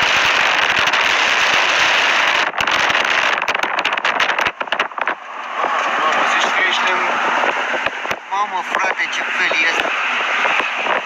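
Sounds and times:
crackling distortion: 0.0s - 11.0s
strong wind buffeting microphone: 0.0s - 11.0s.

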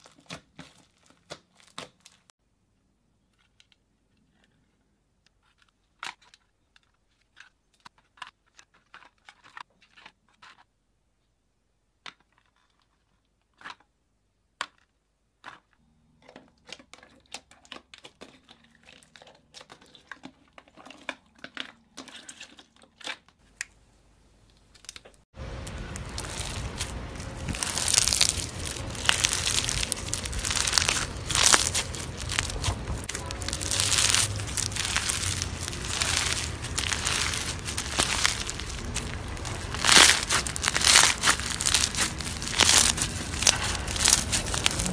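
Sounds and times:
crunchy slime crackling: 0.0s - 2.3s, 24.6s - 44.9s.

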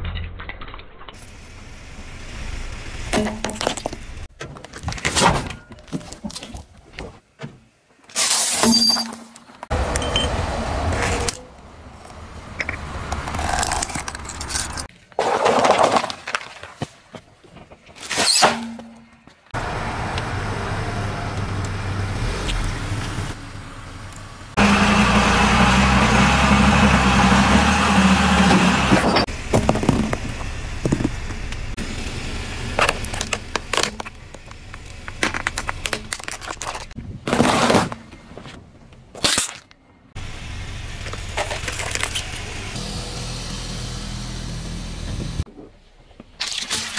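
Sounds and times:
car engine humming: 1.2s - 4.3s, 19.6s - 37.0s, 40.2s - 45.5s
tyres crushing objects: 13.1s - 17.1s, 28.7s - 31.7s, 32.7s - 38.3s
plastic cracking under tyre: 32.8s - 37.7s.

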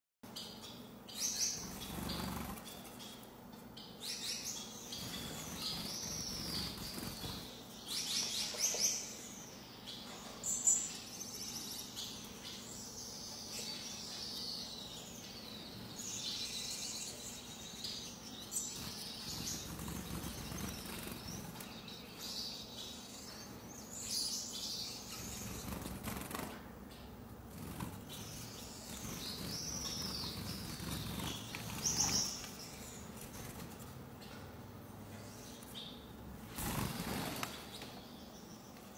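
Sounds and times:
finches chirping: 0.3s - 38.9s
bird wings flapping: 25.6s - 26.6s.

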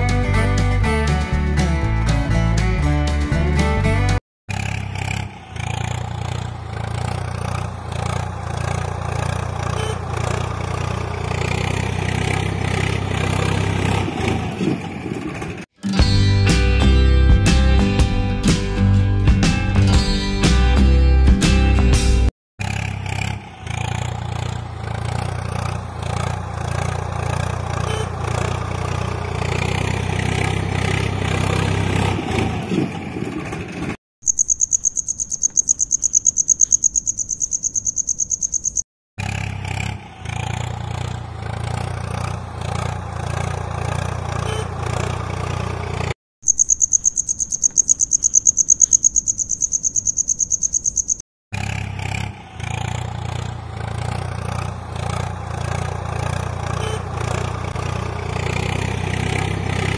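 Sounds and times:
engine running: 3.8s - 19.0s, 21.5s - 34.0s, 39.2s - 46.2s, 51.5s - 59.9s
high-pitched insect chirping: 34.2s - 38.8s, 46.4s - 51.2s.

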